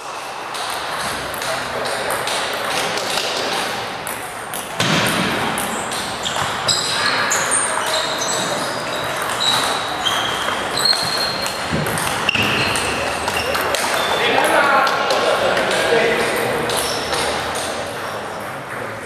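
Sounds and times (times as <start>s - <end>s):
din of voices in hall: 0.0s - 19.0s
table tennis ball clicking: 8.8s - 14.2s.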